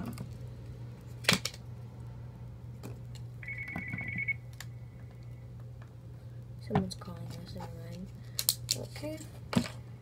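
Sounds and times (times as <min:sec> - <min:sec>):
low hum: 0:01.6 - 0:06.6
telephone ringing: 0:03.4 - 0:04.4.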